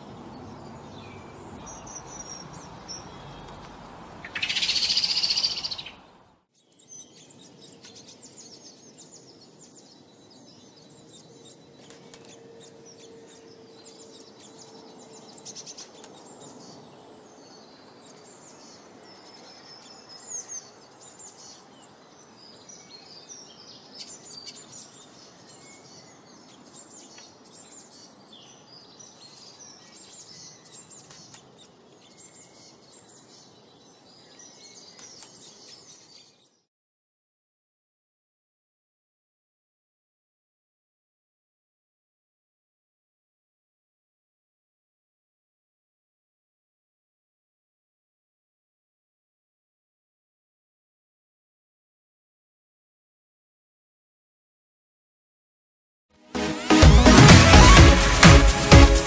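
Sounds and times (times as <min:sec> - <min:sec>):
small songbirds chirping: 0:00.0 - 0:36.7
loud high hiss: 0:56.4 - 0:59.0.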